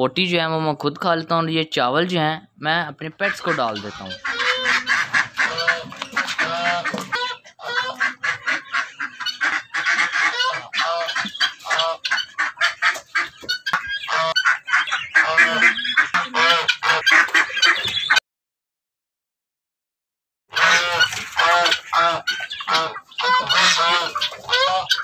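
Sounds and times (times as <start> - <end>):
geese honking: 3.2 - 18.2, 20.5 - 25.0.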